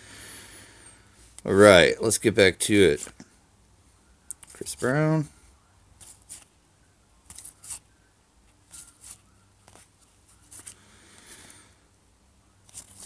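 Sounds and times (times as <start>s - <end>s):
cards sliding papery swishes: 6.0s - 6.5s, 7.3s - 7.9s, 8.6s - 10.8s, 12.6s - 13.0s.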